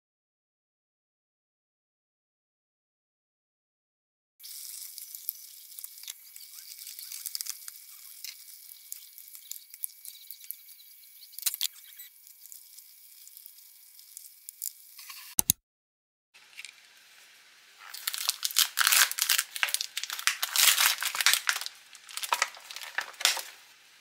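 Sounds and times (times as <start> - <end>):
stew sizzling in a pot: 4.4 - 15.1, 16.4 - 24.0.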